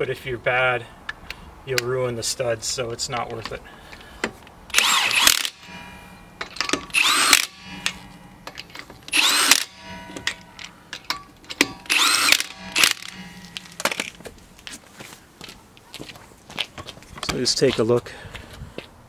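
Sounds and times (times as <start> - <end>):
impact wrench whining: 4.2 - 14.8.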